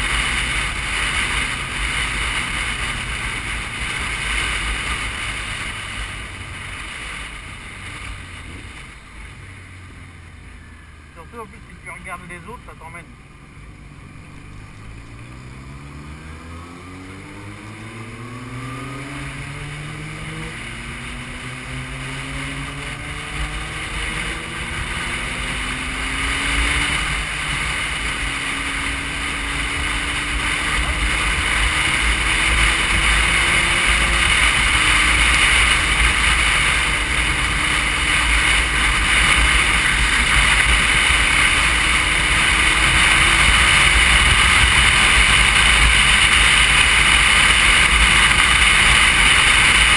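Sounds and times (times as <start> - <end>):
motorcycle engine accelerating: 0.0 - 49.9.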